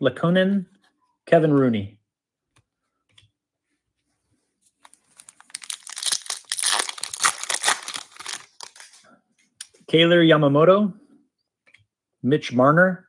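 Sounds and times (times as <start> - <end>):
foil wrapper crinkling: 4.8 - 9.0.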